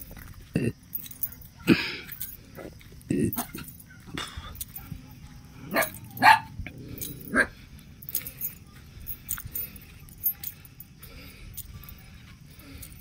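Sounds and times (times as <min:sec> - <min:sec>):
dog barking: 0:04.8 - 0:07.6.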